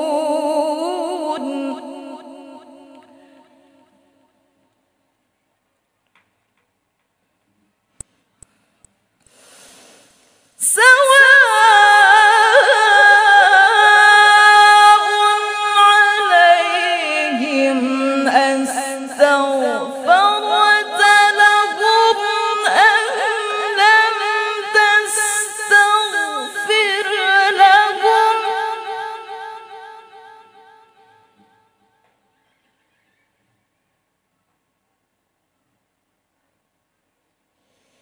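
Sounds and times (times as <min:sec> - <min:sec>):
woman reciting melodically: 0:00.0 - 0:03.8, 0:10.6 - 0:30.6.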